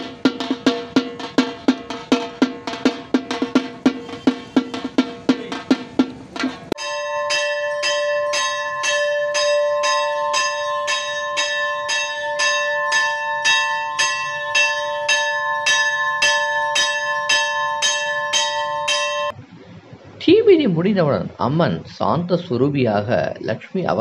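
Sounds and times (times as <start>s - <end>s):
large bell ringing: 6.4s - 19.4s.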